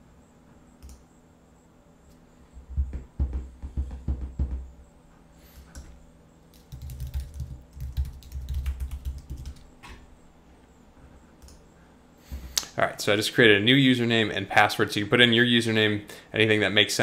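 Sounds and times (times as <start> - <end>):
typing on computer keyboard: 6.5 - 9.7.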